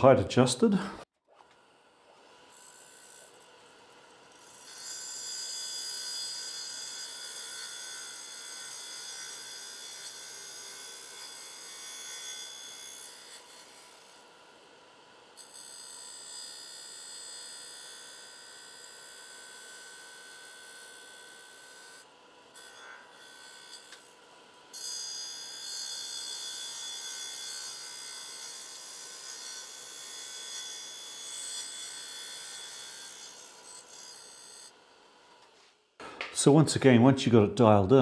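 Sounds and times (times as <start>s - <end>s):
grinder wheel grinding steel: 16.2s - 35.6s.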